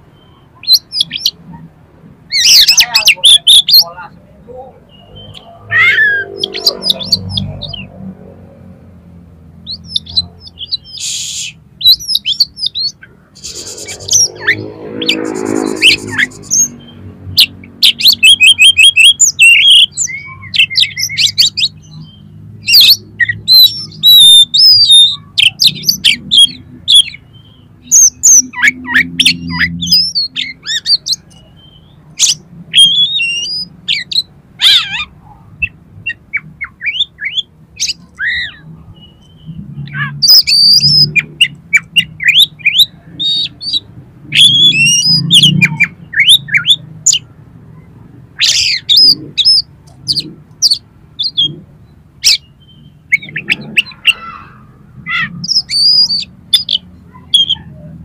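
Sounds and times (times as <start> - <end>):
bird singing whistles and trills: 9.6 - 35.0, 36.0 - 47.3, 55.4 - 57.6.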